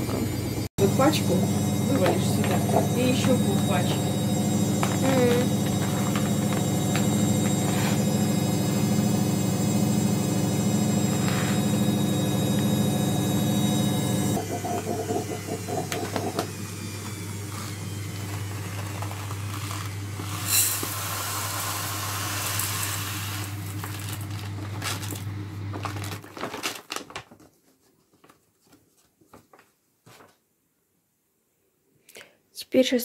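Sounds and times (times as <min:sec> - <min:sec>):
low hum: 0:00.0 - 0:16.8
rice pouring into metal pot: 0:14.4 - 0:25.2
packet rustling: 0:23.5 - 0:30.4.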